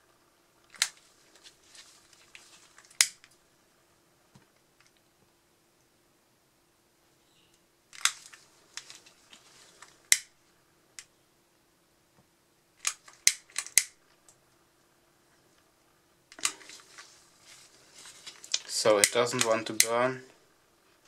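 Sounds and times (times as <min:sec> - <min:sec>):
lighter igniter clicking: 0:03.0 - 0:03.2, 0:10.1 - 0:10.3, 0:12.8 - 0:14.0.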